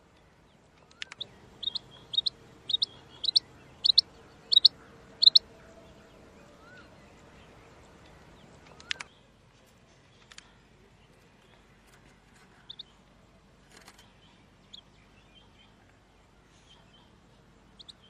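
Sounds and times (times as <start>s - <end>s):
quail calling: 1.0s - 7.0s.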